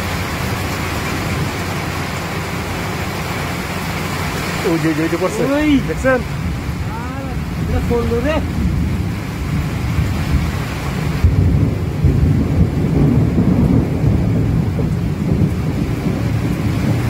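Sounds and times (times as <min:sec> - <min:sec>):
heavy rain: 0:00.0 - 0:17.0
rolling thunder: 0:00.0 - 0:17.0.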